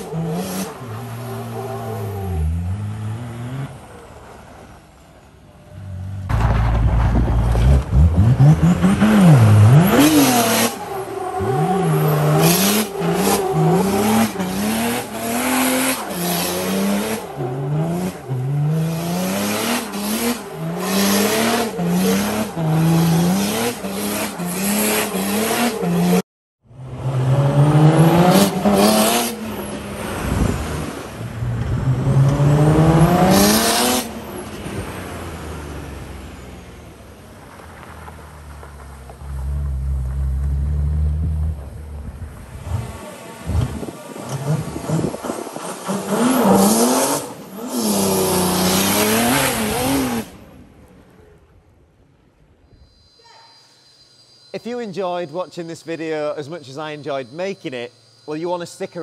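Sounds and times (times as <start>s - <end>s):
diesel engine revving hard: 31.8s - 36.0s
tyre squeal: 52.7s - 54.8s.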